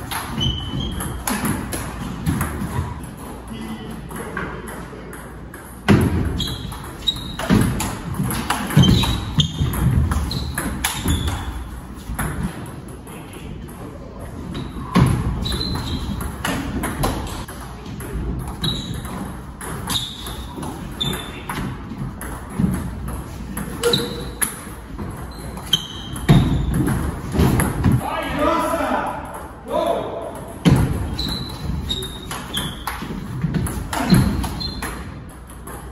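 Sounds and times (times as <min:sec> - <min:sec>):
table tennis ball hits: 0:04.1 - 0:12.6.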